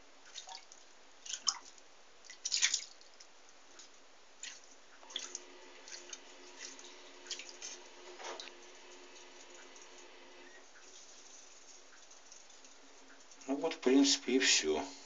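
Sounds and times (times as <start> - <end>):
faint steady hum: 0.0 - 15.0
water dripping and splashing: 0.2 - 13.8.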